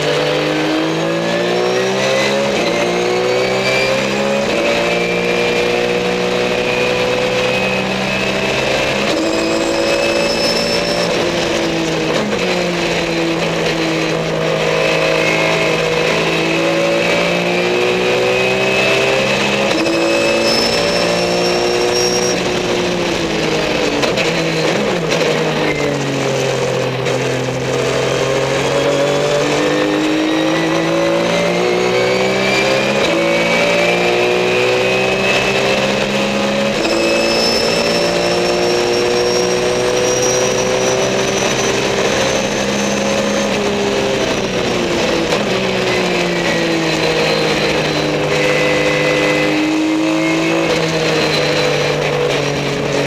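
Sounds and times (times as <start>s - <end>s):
race car engine revving: 0.0s - 53.0s
thin high whine: 9.1s - 11.7s, 19.7s - 22.8s, 36.8s - 44.6s.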